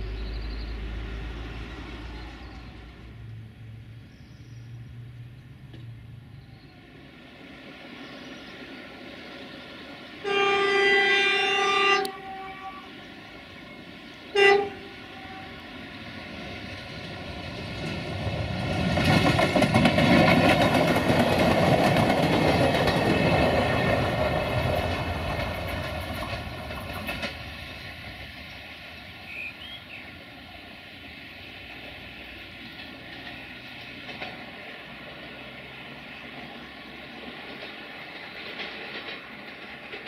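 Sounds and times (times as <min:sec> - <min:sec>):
train rumbling past: 0:00.0 - 0:40.0
train horn: 0:10.2 - 0:13.0, 0:14.3 - 0:15.8.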